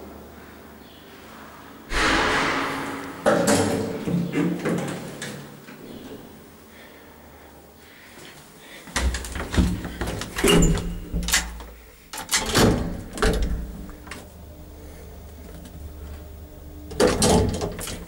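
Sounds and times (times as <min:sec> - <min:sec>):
lift doors clattering shut: 0:09.0 - 0:11.6, 0:12.2 - 0:13.8, 0:17.0 - 0:18.0.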